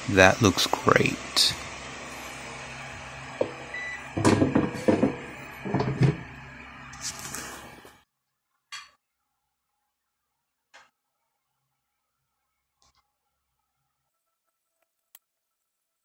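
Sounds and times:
steady hum: 0:00.0 - 0:08.0
air fryer basket knocking: 0:03.3 - 0:06.4.

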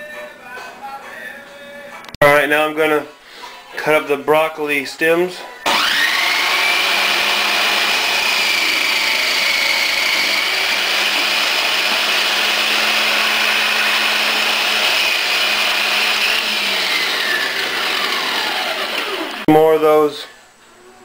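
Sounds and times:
food processor motor whining: 0:05.7 - 0:19.5.

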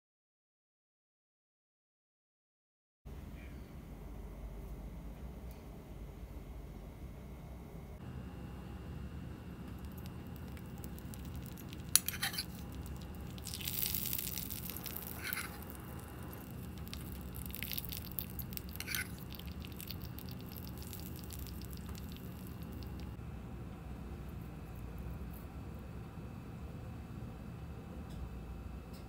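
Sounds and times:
faint crackles: 0:09.7 - 0:23.2
hot oil sizzling: 0:09.7 - 0:23.2.

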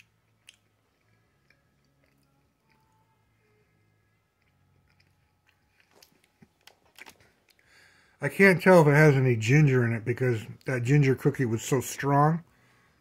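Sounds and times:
peanuts crunching: 0:00.0 - 0:03.2, 0:04.3 - 0:07.8
chewing candy bar: 0:00.0 - 0:07.9.

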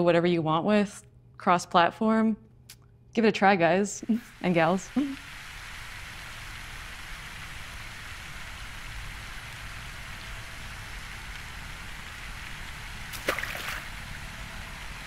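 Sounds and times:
fountain water splashing: 0:04.2 - 0:15.0.

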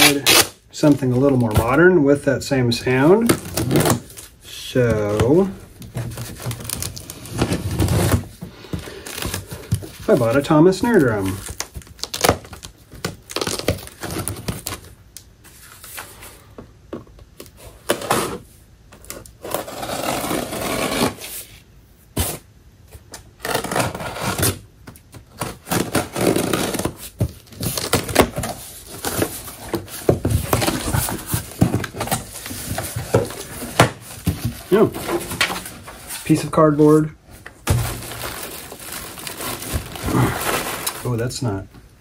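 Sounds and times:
knife slitting packing tape: 0:00.0 - 0:00.6
cardboard scraping and rustling: 0:03.0 - 0:14.9, 0:17.6 - 0:21.6, 0:25.2 - 0:41.2.

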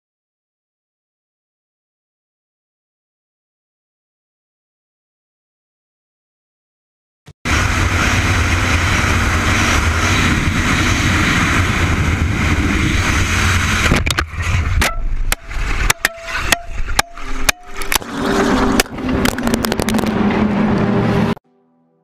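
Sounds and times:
wind noise on helmet: 0:07.5 - 0:15.9
motorcycle engine hum: 0:07.5 - 0:21.4.

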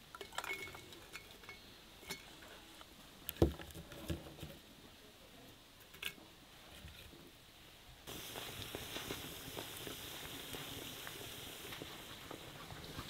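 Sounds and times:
glass clinks: 0:00.2 - 0:02.3.

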